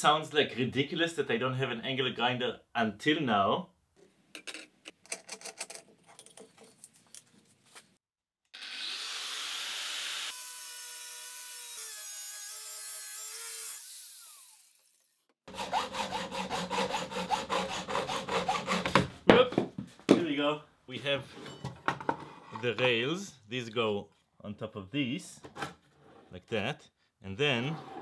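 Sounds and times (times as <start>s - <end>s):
angle grinder cutting metal: 8.5s - 18.6s
hacksaw sawing metal: 15.5s - 19.1s.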